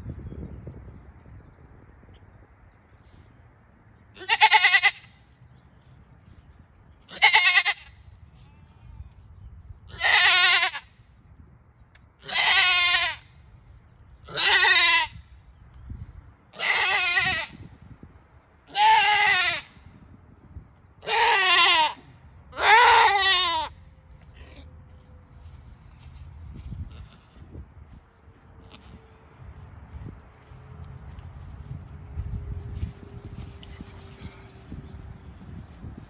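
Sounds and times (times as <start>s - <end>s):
goat bleating loudly: 4.2s - 5.1s, 7.1s - 8.6s, 9.9s - 11.0s, 12.2s - 13.3s, 14.3s - 15.2s, 16.5s - 17.6s, 18.7s - 19.8s, 21.0s - 23.8s, 26.9s - 27.5s, 28.6s - 29.0s.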